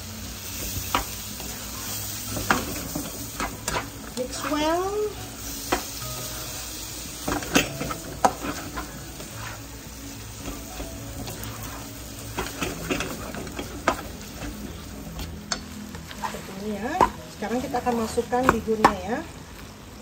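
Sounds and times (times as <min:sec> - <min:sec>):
food sizzling in wok: 0:00.0 - 0:20.0
spatula scraping and tapping pan: 0:10.4 - 0:19.1.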